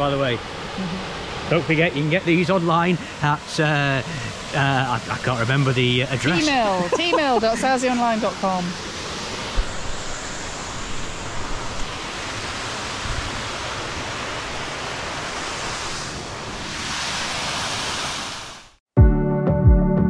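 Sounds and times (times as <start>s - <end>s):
waterfall rushing: 0.0s - 18.7s
wind thumping on microphone: 9.3s - 14.4s.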